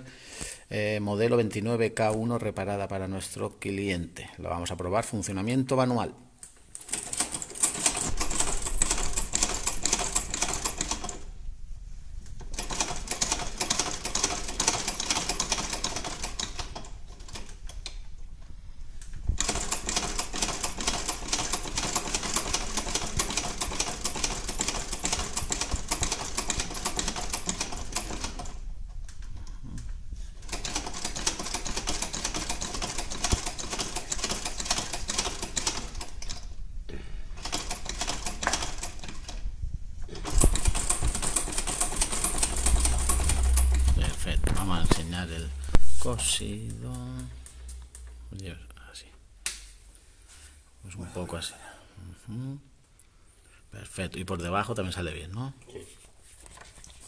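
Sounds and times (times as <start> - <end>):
sewing machine clatter: 6.8 - 11.2, 12.4 - 17.8, 19.4 - 28.6, 30.4 - 36.5, 37.4 - 39.4, 40.1 - 43.8.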